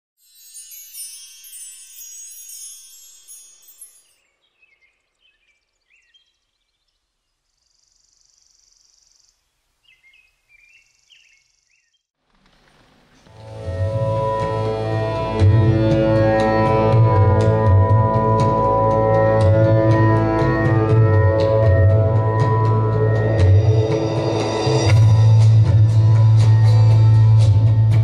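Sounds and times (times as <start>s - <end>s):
shimmering chime flourish: 0.2s - 4.3s, 13.3s - 25.4s
high buzzing trill: 13.3s - 26.3s.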